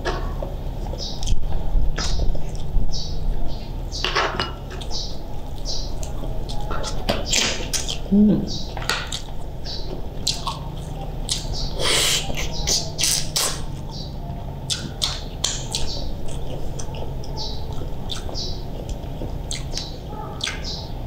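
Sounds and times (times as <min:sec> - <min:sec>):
wet eating mouth sounds: 0:04.8 - 0:09.5, 0:10.2 - 0:13.9, 0:14.7 - 0:20.7.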